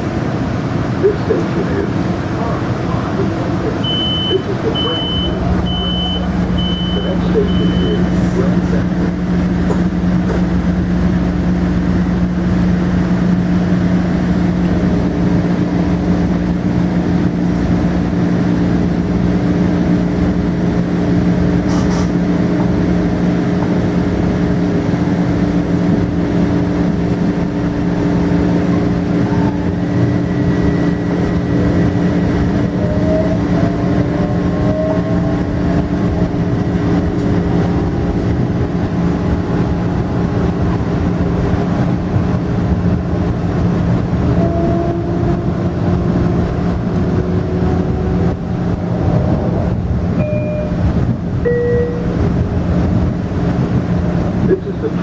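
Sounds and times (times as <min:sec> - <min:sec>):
electric train hum: 0:00.0 - 0:55.0.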